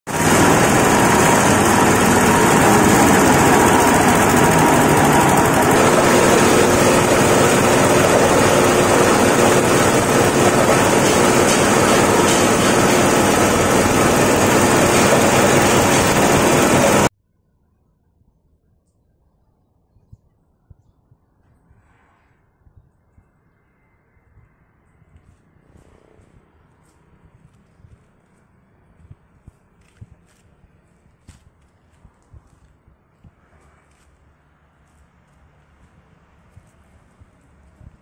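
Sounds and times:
grinding mill engine running: 0.1s - 17.1s.

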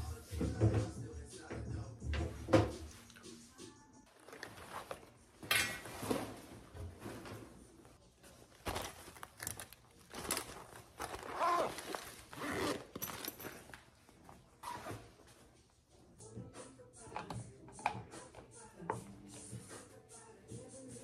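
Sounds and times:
backpack rustling and scraping: 4.1s - 7.6s, 8.2s - 15.5s.

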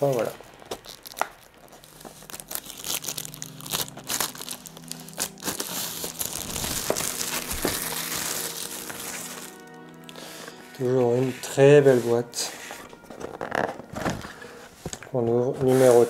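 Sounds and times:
plastic wrap crinkling: 0.0s - 16.0s.

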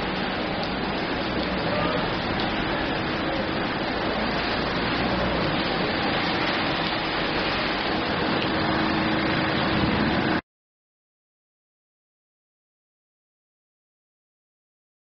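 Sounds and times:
heavy rain on pavement: 0.0s - 10.4s.

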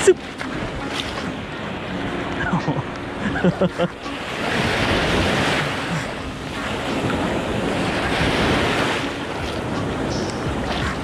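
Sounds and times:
small waves washing on sand: 0.0s - 11.0s
wind buffeting microphone: 4.0s - 11.0s.

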